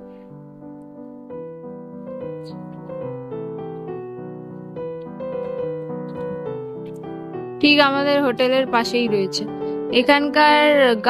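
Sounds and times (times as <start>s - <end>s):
gentle piano melody: 0.0s - 11.0s.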